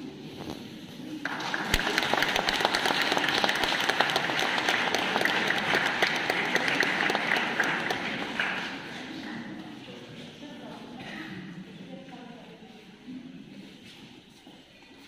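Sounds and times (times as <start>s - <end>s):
audience applause: 1.2s - 9.4s.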